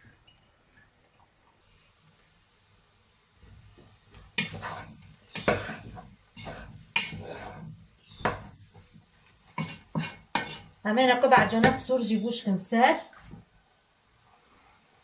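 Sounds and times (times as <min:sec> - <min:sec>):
spatula scraping frying pan: 0:04.2 - 0:08.9, 0:09.5 - 0:11.9.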